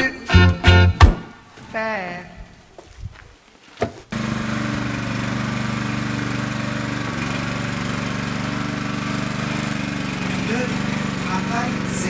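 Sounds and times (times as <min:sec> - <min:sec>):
small engine running: 0:04.1 - 0:12.0.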